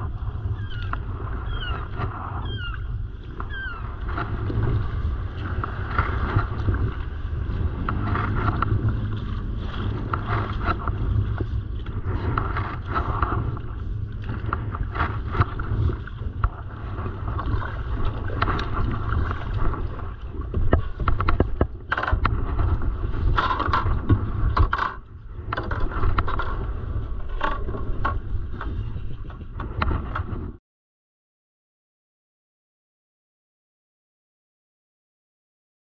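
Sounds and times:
water splashing against hull: 0:00.0 - 0:30.4
wind rumble on microphone: 0:00.0 - 0:30.6
knocks and scrapes: 0:03.4 - 0:30.6.

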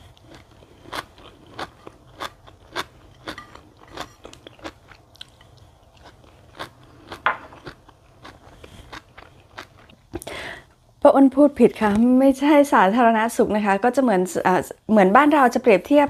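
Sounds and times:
wet crunchy chewing: 0:00.0 - 0:10.2.

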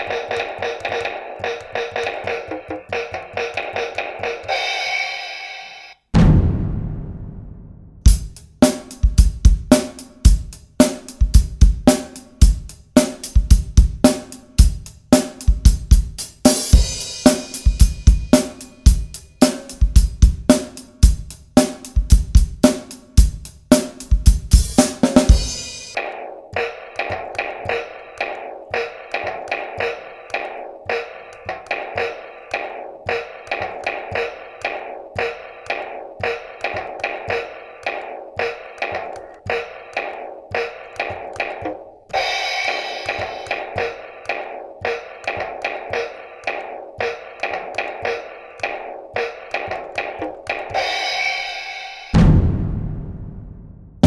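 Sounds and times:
acoustic drum kit groove: 0:00.0 - 0:05.2, 0:08.0 - 0:53.2
toy electronic finger drums: 0:00.0 - 0:06.0, 0:08.1 - 0:52.2
cymbals washing: 0:42.1 - 0:49.7.

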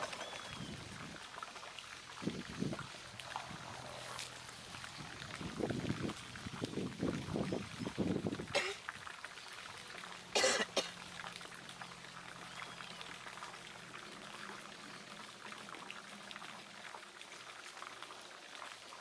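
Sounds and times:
water trickling and dripping: 0:00.0 - 0:19.0
person coughing: 0:08.5 - 0:08.8, 0:10.4 - 0:10.9.

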